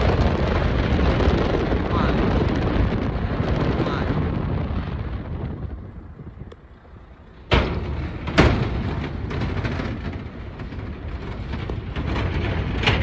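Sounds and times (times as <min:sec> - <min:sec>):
tyres rumbling on road: 0:00.0 - 0:13.0
wind rushing: 0:00.0 - 0:13.0
wheels thumping over bridge joint: 0:07.3 - 0:13.0.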